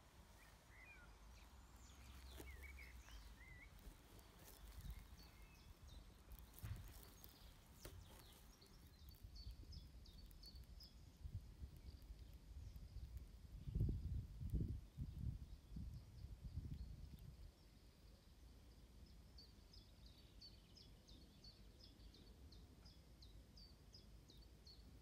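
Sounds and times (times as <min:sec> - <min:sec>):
distant birds chirping: 0:00.0 - 0:13.0
wind rumble on microphone: 0:01.8 - 0:17.6.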